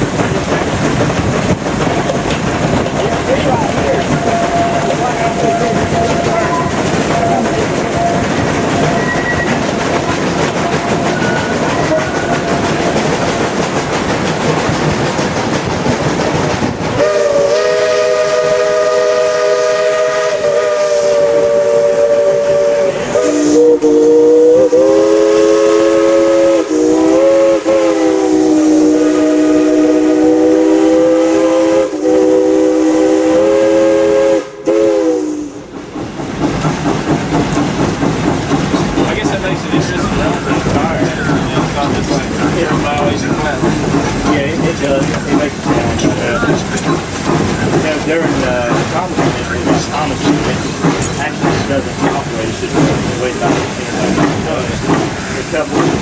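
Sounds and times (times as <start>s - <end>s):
steam train running: 0.0s - 56.0s
locomotive chime whistle: 3.9s - 12.7s.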